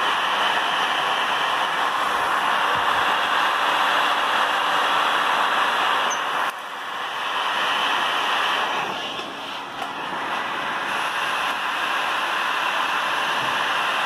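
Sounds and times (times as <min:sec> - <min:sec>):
heat gun blowing hot air: 0:00.0 - 0:14.0.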